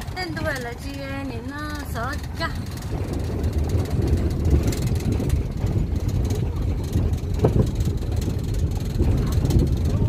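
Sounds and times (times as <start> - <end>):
vehicle engine and road rumble: 0.0 - 10.0.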